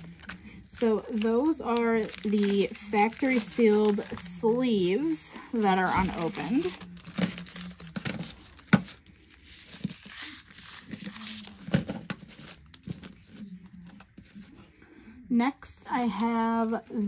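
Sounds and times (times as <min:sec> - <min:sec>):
packaging crinkling: 0:00.0 - 0:13.5.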